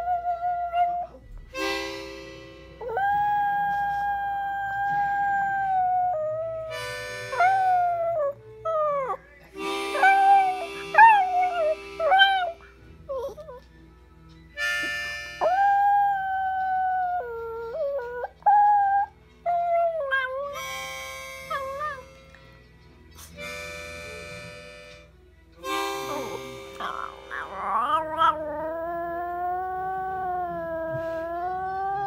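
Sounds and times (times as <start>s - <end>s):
dog howling: 9.9s - 13.6s, 26.1s - 32.0s.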